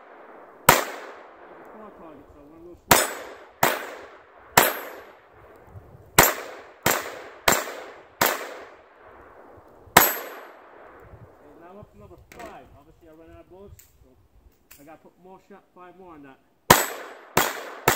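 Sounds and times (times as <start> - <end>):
pistol shots: 0.0 - 2.2, 2.9 - 5.3, 6.2 - 9.0, 10.0 - 11.0, 16.7 - 17.9
steel target ringing: 10.0 - 10.5.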